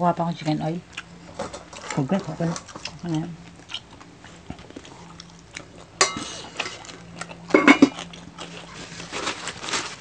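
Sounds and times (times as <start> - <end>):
crispy pork crackling: 0.0 - 10.0
ceramic bowl clink: 6.0 - 6.3, 7.5 - 7.9.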